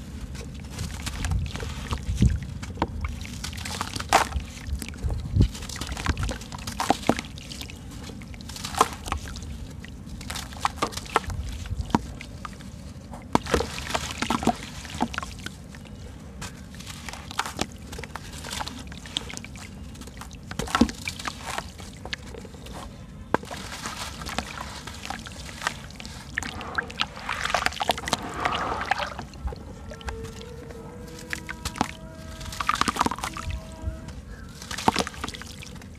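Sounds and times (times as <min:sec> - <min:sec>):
water sloshing: 0:00.0 - 0:35.9
crumbs dropping into water: 0:31.0 - 0:33.4, 0:34.5 - 0:35.9.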